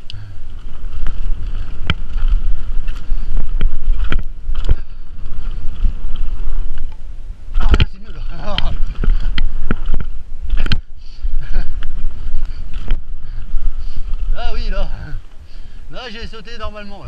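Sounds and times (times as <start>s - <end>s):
bike knocking and rattling: 0.0s - 16.8s
wind buffeting microphone: 0.0s - 17.0s.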